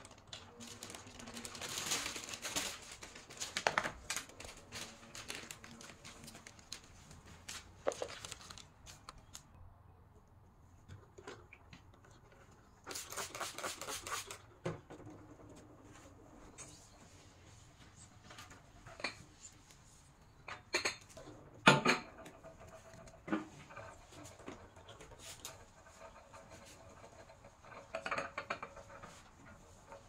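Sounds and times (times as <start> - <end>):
spray bottle squirts: 12.9 - 14.4.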